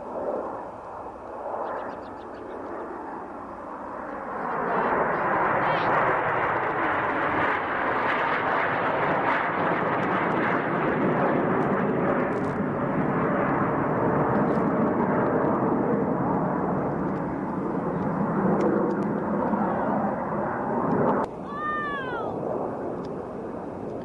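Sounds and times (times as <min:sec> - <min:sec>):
jet engines flying overhead: 0:00.0 - 0:24.0.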